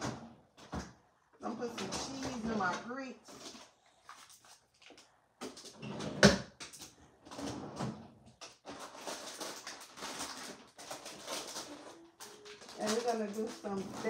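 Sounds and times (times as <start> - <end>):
kitchen clatter: 5.5 - 14.0
rustling: 8.4 - 14.0.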